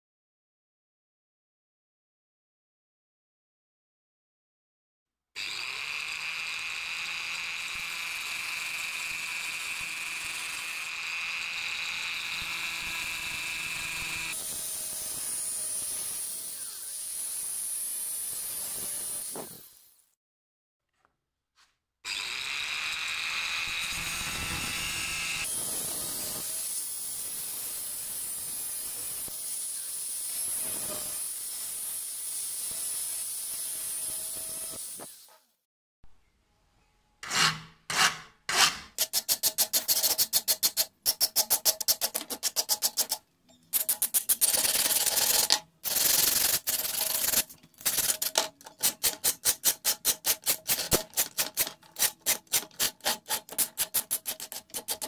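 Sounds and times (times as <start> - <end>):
file rasping on steel: 37.2 - 43.2, 43.8 - 55.0.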